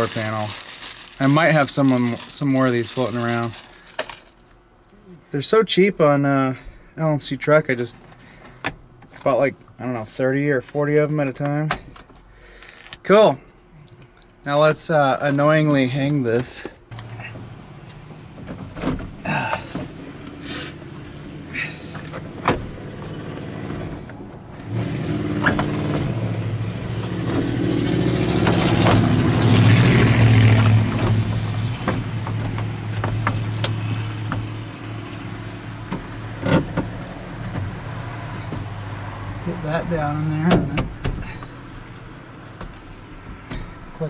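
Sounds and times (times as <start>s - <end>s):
vehicle engine hum: 6.4s - 44.0s.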